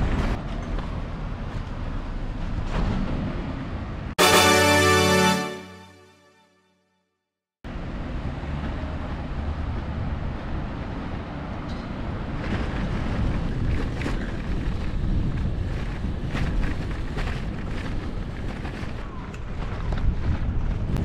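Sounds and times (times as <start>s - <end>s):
wind buffeting microphone: 8.1s - 21.0s.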